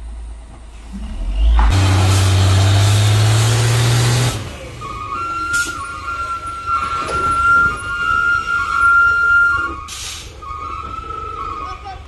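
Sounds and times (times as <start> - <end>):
truck diesel engine revving: 0.8 - 6.9.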